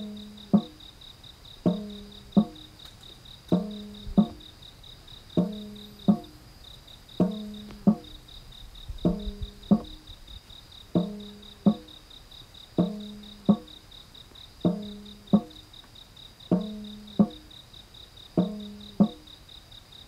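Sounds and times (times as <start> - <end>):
cricket chirping: 0.0 - 20.0
struck ringing notes: 1.7 - 2.6, 3.5 - 4.4, 5.4 - 6.4, 7.2 - 8.1, 9.1 - 10.0, 11.0 - 11.9.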